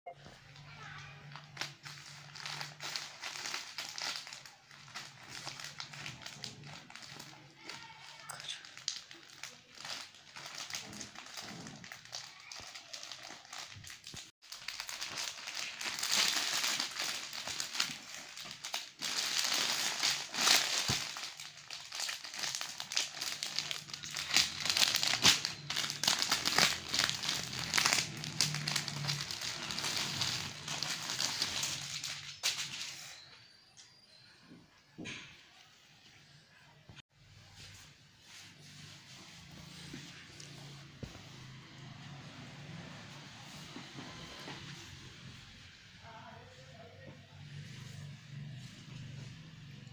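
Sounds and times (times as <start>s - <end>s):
plastic packaging crinkling: 0.5s - 33.1s.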